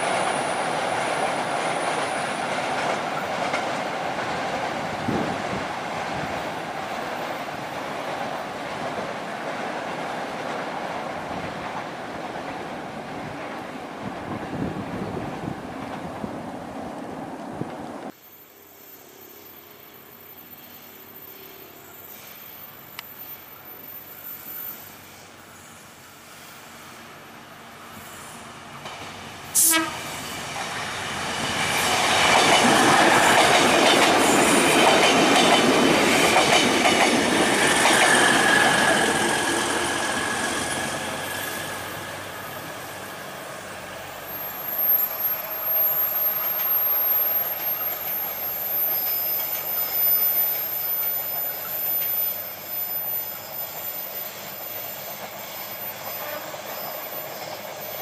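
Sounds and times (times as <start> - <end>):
train passing: 0.0 - 58.0
wheel squeal: 40.1 - 58.0.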